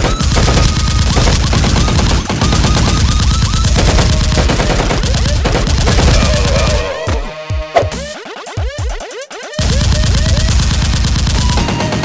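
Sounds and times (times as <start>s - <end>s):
rapid automatic gunfire: 0.0s - 6.9s, 9.6s - 12.0s.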